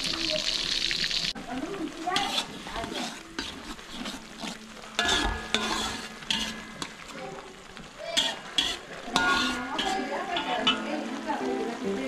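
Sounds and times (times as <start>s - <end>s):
sauce sizzling in a wok: 0.0s - 12.0s
metal spoon scraping a pan: 2.0s - 7.4s, 8.1s - 11.0s.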